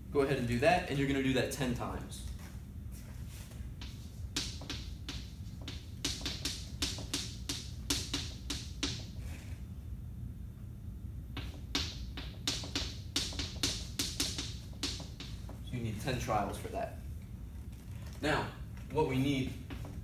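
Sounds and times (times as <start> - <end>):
chalk tapping and scratching: 3.0 - 9.5, 11.4 - 15.6.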